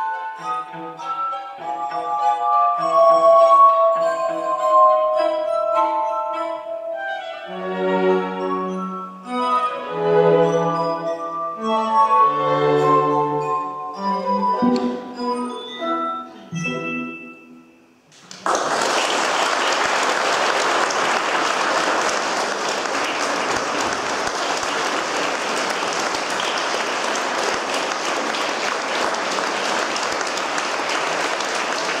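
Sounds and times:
audience applause: 18.2 - 32.0.

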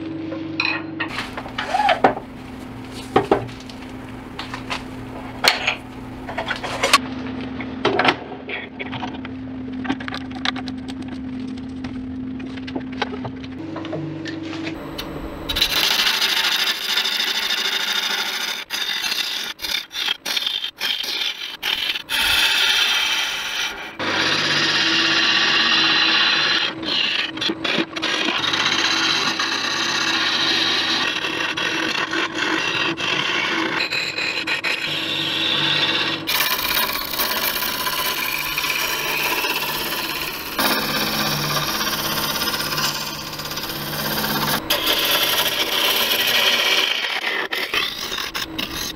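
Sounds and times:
lathe faint low hum: 0.0 - 17.4, 34.8 - 48.9
tool scraping spinning wood: 1.1 - 7.0, 14.5 - 48.9.

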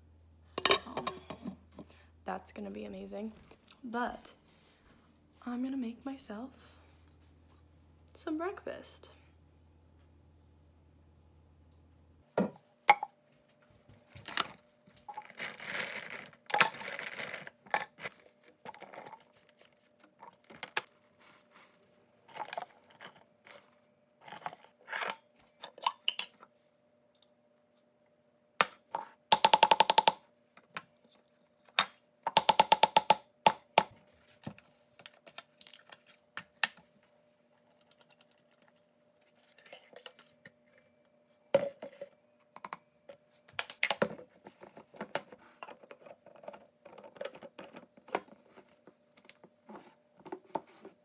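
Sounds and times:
faint steady hum: 0.0 - 51.0
blueberries rattling into cup: 15.1 - 18.1.

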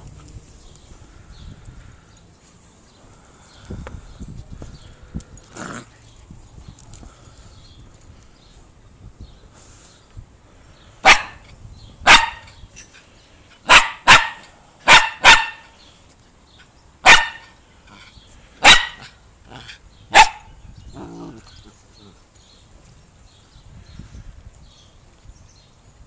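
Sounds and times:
terrier barking: 11.0 - 11.4, 12.0 - 12.6, 13.6 - 15.8, 17.0 - 17.6, 18.6 - 20.5.

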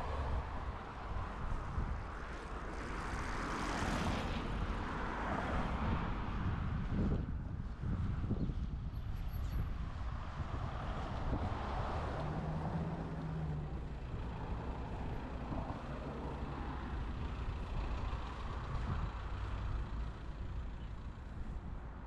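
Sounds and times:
road traffic passing: 0.0 - 22.0
heavy vehicle engine rumble: 6.4 - 22.0.

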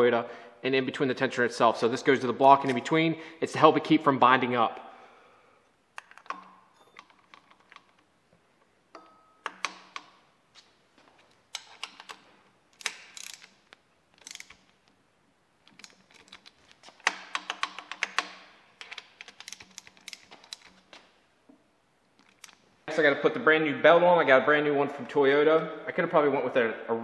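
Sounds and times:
metal clinks and taps: 6.0 - 8.1, 8.9 - 10.3
socket ratchet clicking: 6.0 - 8.1, 9.0 - 10.2, 11.4 - 14.8, 15.6 - 20.9.

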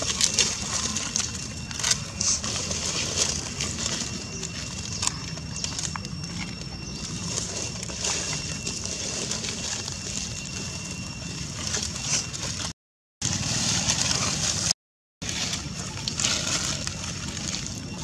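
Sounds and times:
faint high insect whine: 0.0 - 12.6
dry leaves crunching and rustling: 0.0 - 18.0
outdoor background rumble: 0.0 - 18.0.

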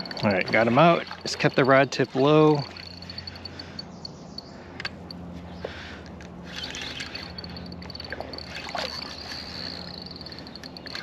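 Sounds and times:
water splashing: 0.0 - 3.6
fishing reel ticking: 0.0 - 5.2, 6.4 - 11.0.

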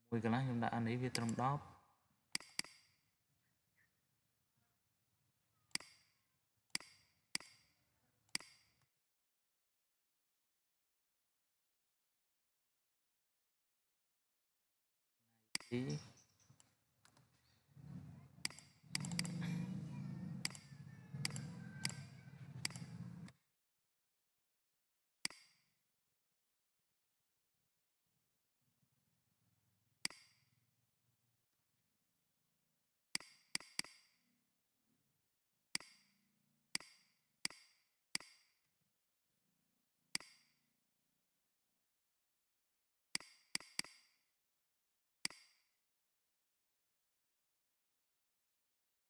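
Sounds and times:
computer mouse clicking: 1.1 - 1.5, 2.4 - 2.9, 5.7 - 6.2, 6.8 - 8.9, 18.4 - 19.5, 20.4 - 23.3.

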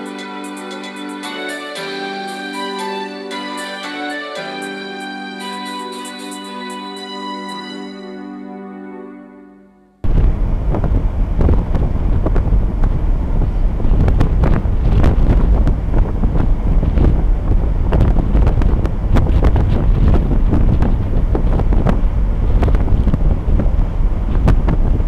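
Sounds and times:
music: 0.0 - 10.0
steady low rumble: 10.0 - 25.0
wind buffeting microphone: 10.0 - 25.0.

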